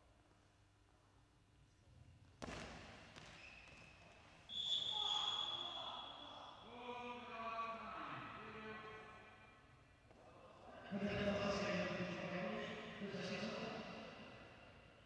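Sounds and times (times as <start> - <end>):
referee's whistle blast: 4.5 - 6.3.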